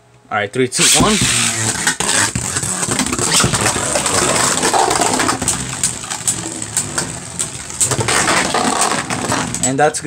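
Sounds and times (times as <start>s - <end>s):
spinning tops whirring: 0.8s - 9.7s.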